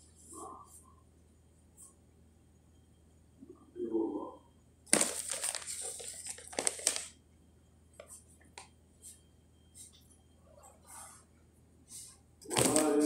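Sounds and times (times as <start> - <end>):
plastic packet crinkling: 4.9 - 7.2.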